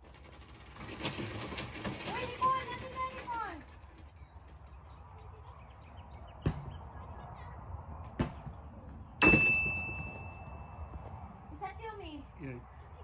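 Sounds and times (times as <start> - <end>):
high ringing tone: 9.2 - 11.2.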